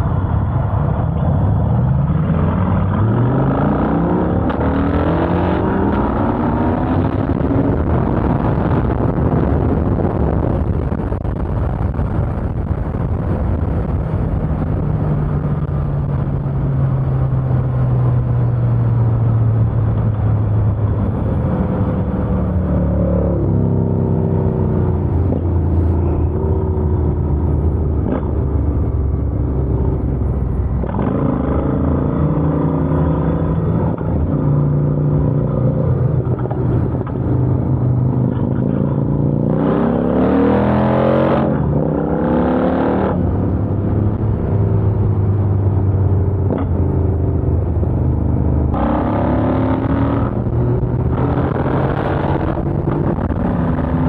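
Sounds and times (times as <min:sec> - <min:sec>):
motorcycle engine revving: 0:19.6 - 0:54.0.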